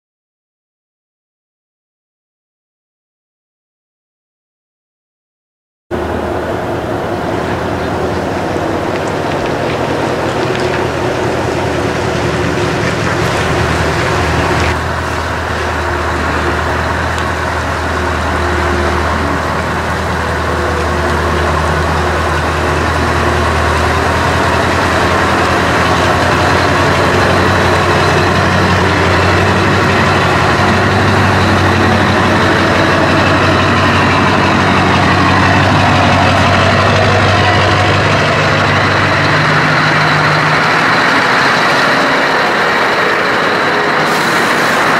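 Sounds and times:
truck engine idling: 0:05.9 - 0:44.9.

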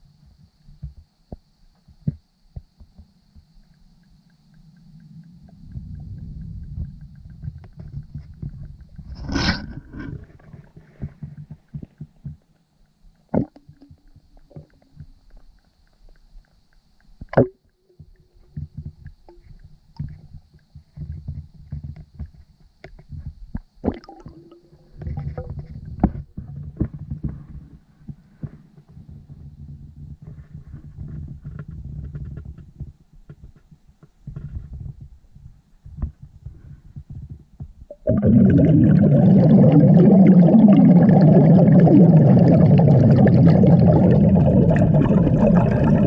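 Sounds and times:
underwater rumble of water: 0:02.8 - 0:16.1, 0:23.6 - 0:28.3, 0:36.4 - 0:46.0
bubbles: 0:23.8 - 0:26.2, 0:37.9 - 0:46.0.

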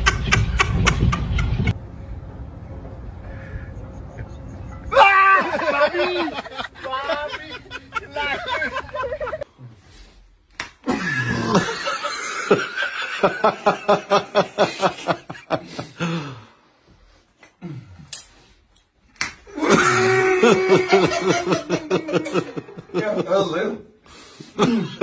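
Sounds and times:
men laughing hard: 0:00.0 - 0:01.8, 0:04.9 - 0:09.5, 0:10.8 - 0:16.5, 0:19.5 - 0:23.7, 0:24.4 - 0:25.0.

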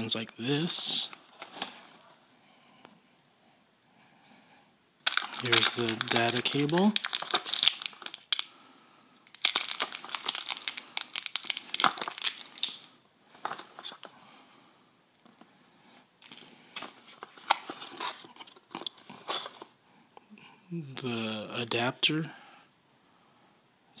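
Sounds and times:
plastic bag crinkling: 0:05.0 - 0:08.5, 0:09.2 - 0:14.1, 0:16.2 - 0:19.7.

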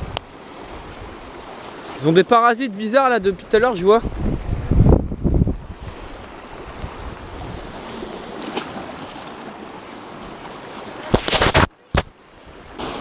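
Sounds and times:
wind on microphone: 0:00.0 - 0:01.3, 0:03.8 - 0:08.3
sea surf washing ashore: 0:00.0 - 0:13.0.

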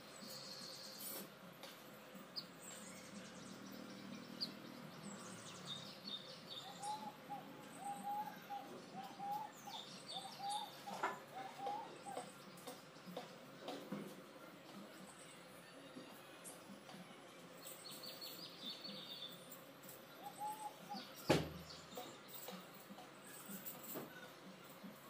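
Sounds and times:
high bird chirping: 0:02.4 - 0:13.3.

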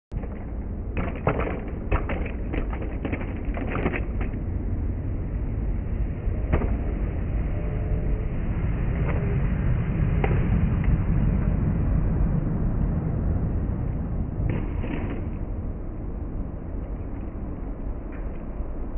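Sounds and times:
low rumble: 0:00.1 - 0:18.9
skateboard clicks and knocks: 0:00.2 - 0:04.5.

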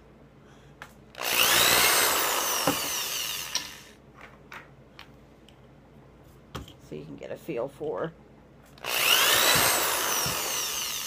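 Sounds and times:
electric drill whining: 0:01.2 - 0:04.0, 0:08.8 - 0:11.0.

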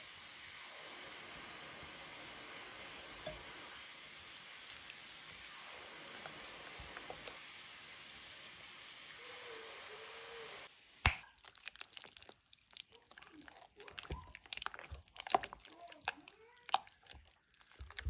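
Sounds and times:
onions sizzling in a pan: 0:00.0 - 0:11.8.

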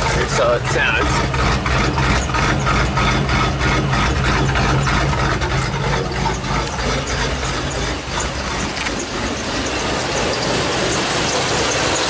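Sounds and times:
rough engine idle exhaust chugging: 0:00.0 - 0:12.0.

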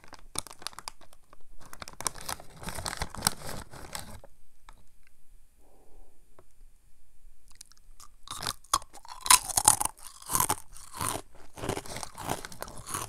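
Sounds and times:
plastic snack bag crinkling: 0:00.0 - 0:04.3, 0:07.5 - 0:13.0.

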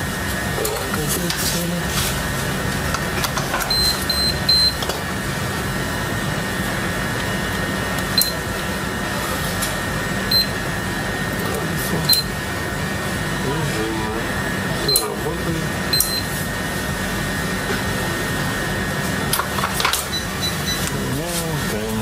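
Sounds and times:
steady background hum: 0:00.0 - 0:22.0
control panel beeping: 0:03.0 - 0:04.9, 0:08.0 - 0:08.5, 0:10.3 - 0:10.6, 0:12.0 - 0:12.4, 0:14.8 - 0:15.3, 0:15.9 - 0:16.4, 0:20.0 - 0:21.2.

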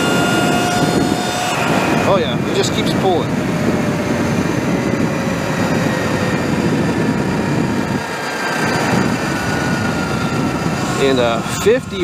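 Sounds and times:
electric motor whine: 0:00.0 - 0:12.0
wind on microphone: 0:00.0 - 0:12.0.

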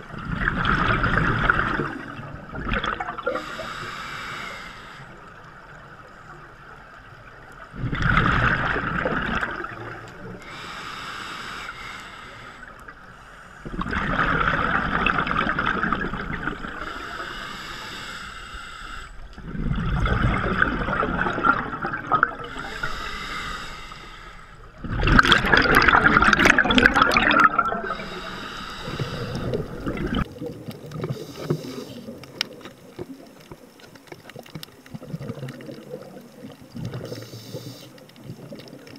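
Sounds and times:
exhaled bubbles bursting: 0:00.0 - 0:03.4, 0:07.7 - 0:10.3, 0:13.6 - 0:16.8, 0:19.4 - 0:22.6, 0:24.8 - 0:31.4, 0:32.1 - 0:37.2
faint crackling: 0:00.4 - 0:38.9
regulator inhale hiss: 0:03.3 - 0:05.4, 0:10.4 - 0:13.7, 0:16.8 - 0:19.3, 0:22.4 - 0:24.8, 0:27.8 - 0:30.0, 0:31.0 - 0:32.3, 0:36.9 - 0:38.1.

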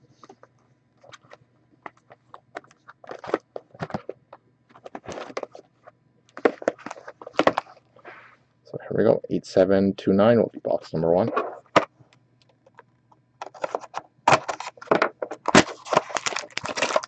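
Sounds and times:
cards rustling and scraping: 0:00.1 - 0:08.4, 0:11.2 - 0:11.9, 0:13.4 - 0:17.0.

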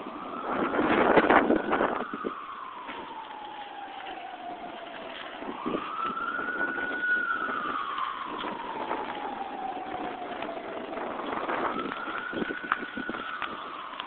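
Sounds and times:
emergency vehicle siren wailing: 0:00.0 - 0:14.0
street noise: 0:00.0 - 0:14.0.

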